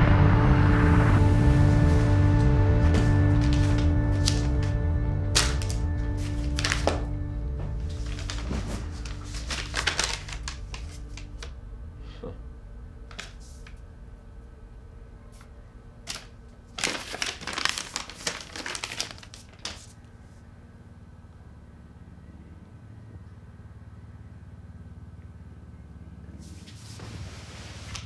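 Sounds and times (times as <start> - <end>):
rustling crinkling handling noises: 2.8 - 4.7, 5.3 - 11.6, 16.1 - 20.0.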